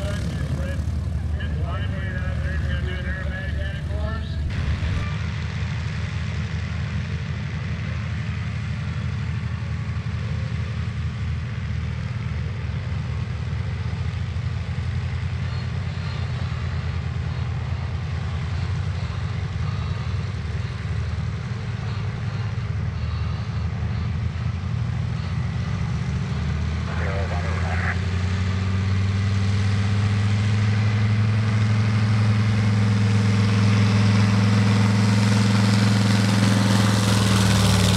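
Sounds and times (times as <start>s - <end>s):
radial engine idling: 0.0s - 28.8s.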